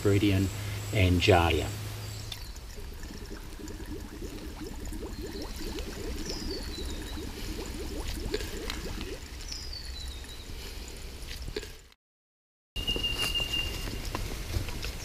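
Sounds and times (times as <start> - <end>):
water bubbling and boiling: 1.8 - 11.6
campfire crackle: 1.8 - 11.9.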